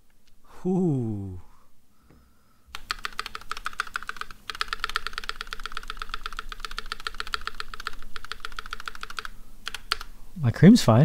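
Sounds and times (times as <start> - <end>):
mechanical keyboard typing: 2.7 - 10.1.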